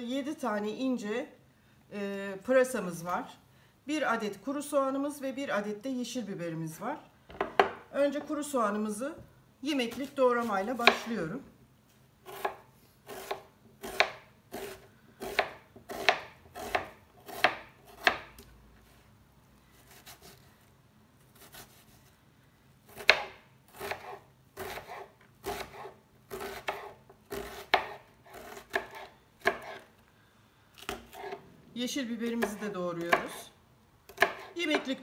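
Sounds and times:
knife chopping on cutting board: 10.8s - 11.1s, 12.3s - 18.4s, 22.9s - 29.8s, 30.8s - 31.4s, 34.1s - 34.8s.

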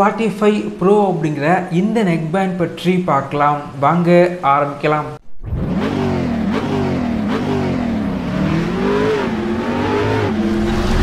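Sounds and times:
car engine accelerating: 5.4s - 11.0s.

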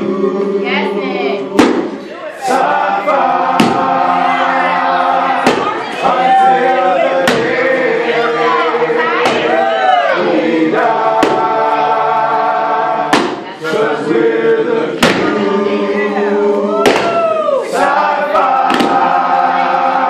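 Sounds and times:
voices singing long chords: 0.0s - 20.0s
sharp percussive hits: 1.6s - 2.0s, 3.5s - 4.0s, 11.2s - 11.7s, 13.1s - 13.5s, 15.0s - 15.4s.

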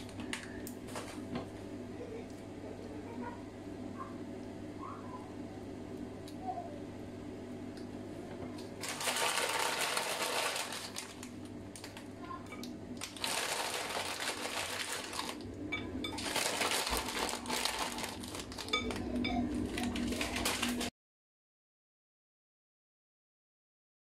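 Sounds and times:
croutons rattling from plastic packet: 8.8s - 12.0s, 13.0s - 15.4s, 16.1s - 20.9s.

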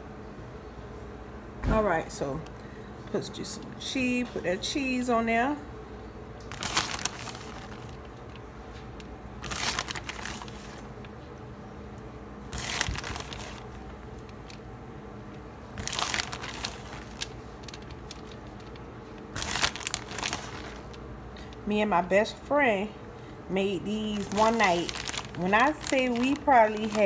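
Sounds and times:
plastic bag crinkling: 6.5s - 11.2s, 12.5s - 14.7s, 15.7s - 21.6s, 24.0s - 27.0s.

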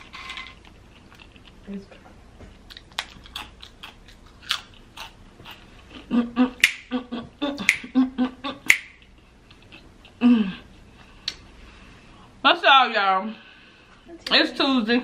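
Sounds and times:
chip being chewed: 0.7s - 1.6s, 2.6s - 6.9s
finger snaps: 6.6s - 6.9s, 7.6s - 7.9s, 8.7s - 9.0s, 11.2s - 11.4s
woman humming a tune: 10.2s - 10.6s.

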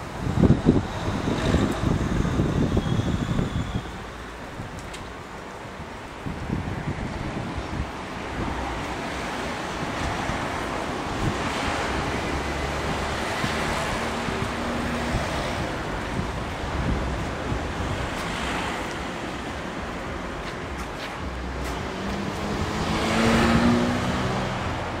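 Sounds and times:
road traffic: 0.0s - 25.0s
wind on microphone: 0.0s - 25.0s
car passing close: 6.8s - 25.0s.

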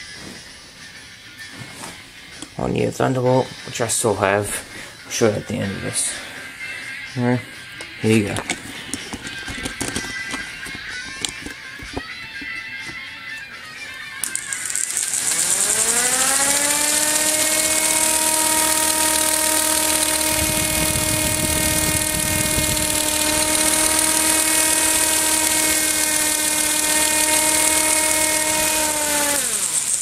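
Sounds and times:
electric motor whine: 14.1s - 30.0s
gear noise hiss: 14.2s - 30.0s.

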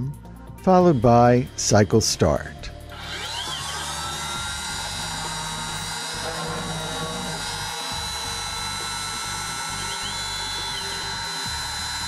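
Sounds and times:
milling machine spindle whine: 2.8s - 12.0s
second lower whine: 2.9s - 12.0s.

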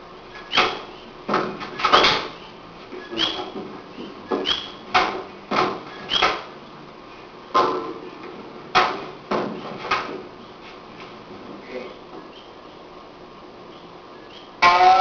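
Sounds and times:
shoes squeaking on floor: 1.9s - 4.9s, 5.9s - 6.4s
sharp slaps and thuds of strikes: 4.9s - 6.5s, 8.7s - 10.2s.

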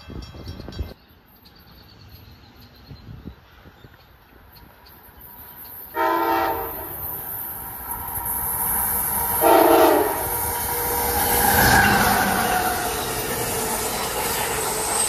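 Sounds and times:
train running noise: 0.0s - 15.0s
train horn blasts: 5.9s - 7.0s, 9.4s - 12.1s.

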